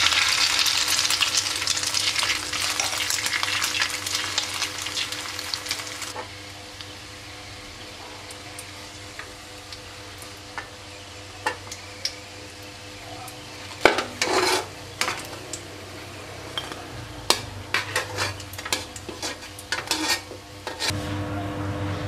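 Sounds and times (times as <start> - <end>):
oil sizzling: 0.0 - 21.0
metal spatula scraping a wok: 13.9 - 15.3, 16.6 - 21.0.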